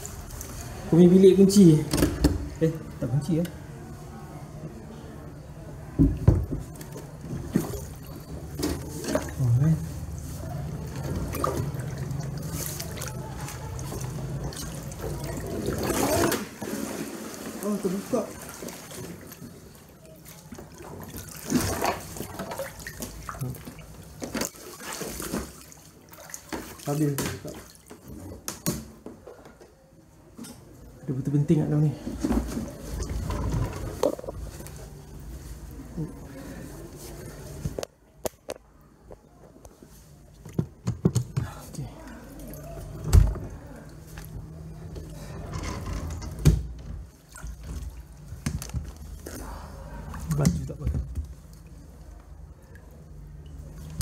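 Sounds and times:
water splashing around legs: 6.7s - 28.1s, 47.1s - 49.5s.

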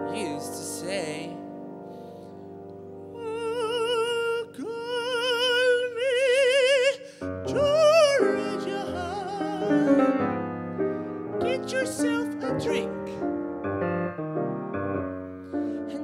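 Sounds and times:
person singing with vibrato: 0.0s - 1.7s, 3.0s - 10.4s, 11.0s - 13.2s, 15.5s - 16.0s
grand piano accompaniment: 0.0s - 16.0s.

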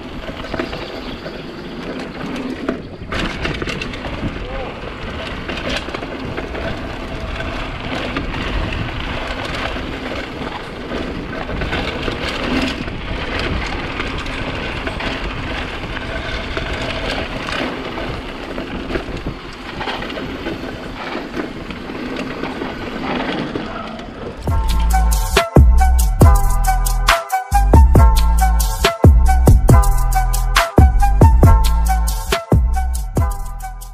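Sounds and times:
wind on microphone: 0.0s - 25.0s
bike tyres crunching: 0.0s - 33.2s
bike rattling: 0.0s - 33.9s.

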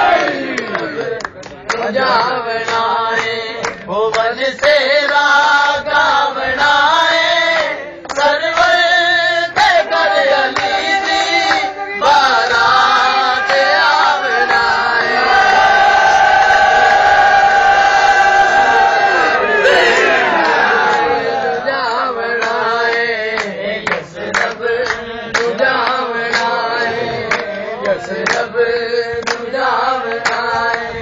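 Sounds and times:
men singing a chanting melody: 0.0s - 31.0s
sharp hand claps: 0.1s - 5.7s, 7.6s - 8.9s, 10.5s - 11.8s, 22.3s - 30.9s.

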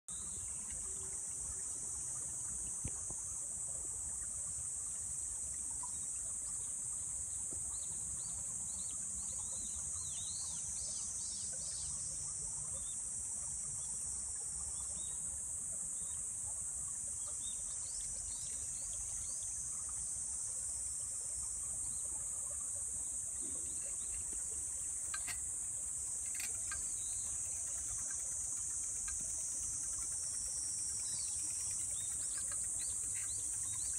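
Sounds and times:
high-pitched insect drone: 23.4s - 33.9s
bird chirps: 26.2s - 33.9s.

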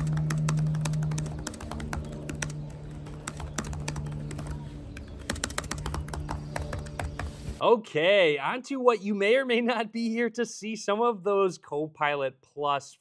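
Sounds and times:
laptop keyboard typing: 0.0s - 7.5s.

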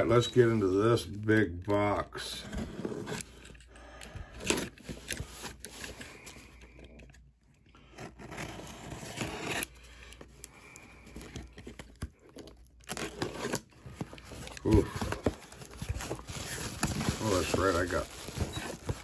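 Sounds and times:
cardboard tearing and scraping: 2.4s - 3.4s, 7.8s - 9.8s, 11.2s - 19.0s.

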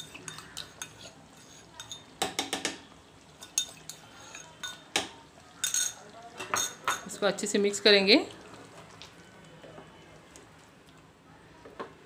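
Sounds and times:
spoon scraping a bowl: 0.0s - 2.1s, 3.4s - 4.9s
spoon clinking on porcelain: 1.8s - 2.8s, 3.4s - 7.1s.

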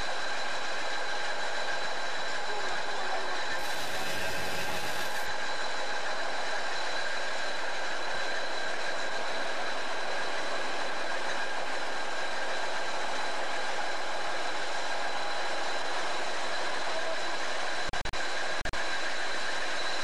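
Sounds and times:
diesel locomotive idling: 0.0s - 20.0s.

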